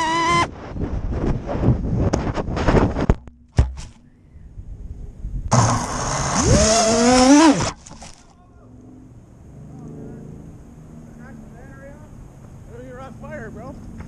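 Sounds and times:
drone motors whining: 0:00.0 - 0:00.5, 0:05.5 - 0:10.2.

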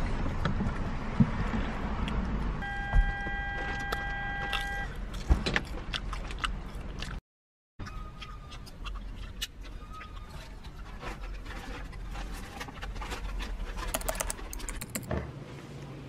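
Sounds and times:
steady electronic beep tone: 0:02.6 - 0:04.9.

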